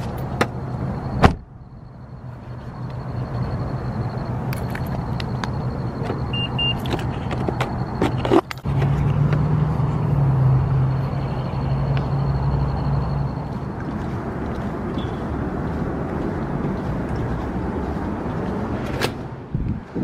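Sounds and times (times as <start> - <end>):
short electronic beeps: 0.6 - 8.4, 10.9 - 14.0.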